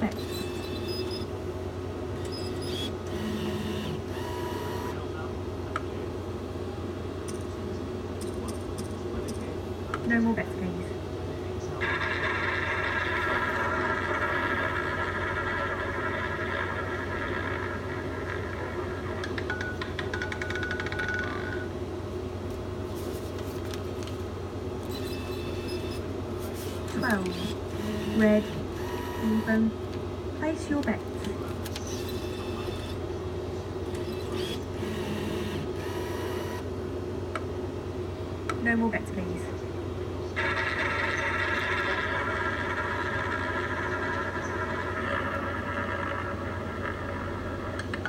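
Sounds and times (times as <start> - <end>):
low electrical hum: 0.0 - 48.0
roulette ball whirring: 11.8 - 21.7, 40.4 - 48.0.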